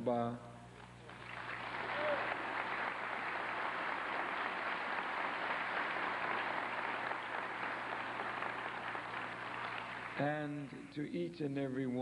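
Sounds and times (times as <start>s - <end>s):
audience applauding: 0.8s - 10.4s.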